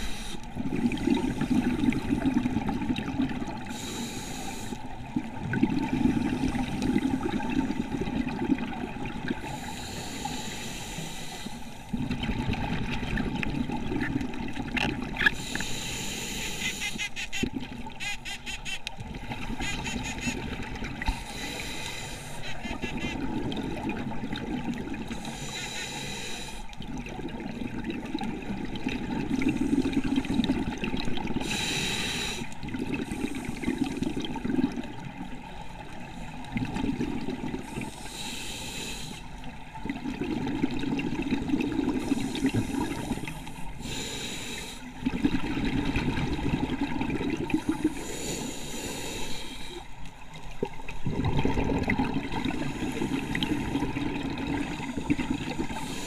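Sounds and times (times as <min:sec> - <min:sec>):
gurgling exhaled bubbles: 0:00.0 - 0:03.8, 0:05.0 - 0:09.6, 0:11.9 - 0:15.5, 0:22.5 - 0:25.3, 0:32.6 - 0:38.0, 0:39.5 - 0:43.5, 0:45.0 - 0:48.2, 0:50.3 - 0:56.0
diver inhaling through regulator: 0:03.7 - 0:04.9, 0:09.4 - 0:11.8, 0:15.3 - 0:17.4, 0:21.1 - 0:23.2, 0:25.2 - 0:26.7, 0:31.4 - 0:34.1, 0:37.7 - 0:39.3, 0:41.9 - 0:45.0, 0:47.6 - 0:49.9, 0:54.6 - 0:56.0.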